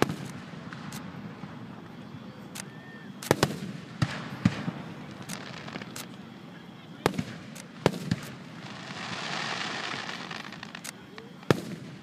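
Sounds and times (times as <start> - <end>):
firework shells bursting: 7.1 - 12.0.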